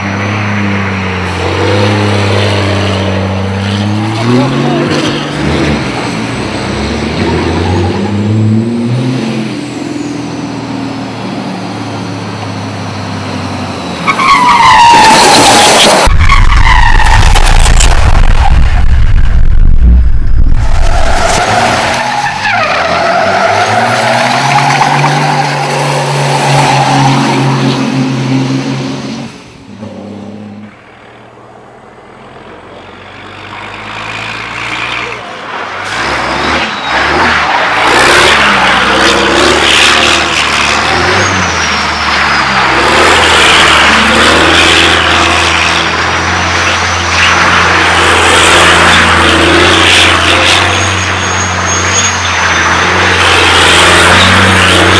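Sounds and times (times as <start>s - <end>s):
tyres squealing and skidding: 0.0s - 8.8s, 13.0s - 19.2s, 20.6s - 28.4s, 33.1s - 54.9s
diesel engine revving hard: 0.0s - 30.6s, 33.3s - 54.9s.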